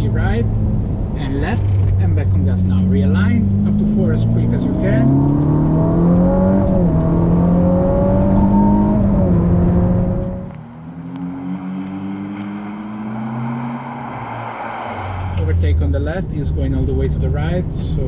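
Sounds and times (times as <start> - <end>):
sports car engine pulling hard: 0.0 - 18.0.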